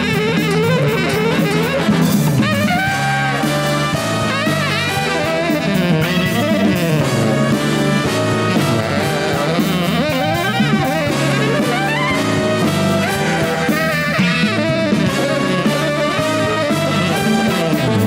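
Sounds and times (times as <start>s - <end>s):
bass: 0.0s - 18.0s
brass section: 0.0s - 18.0s
drum kit: 0.0s - 18.0s
tenor saxophone solo: 0.0s - 18.0s.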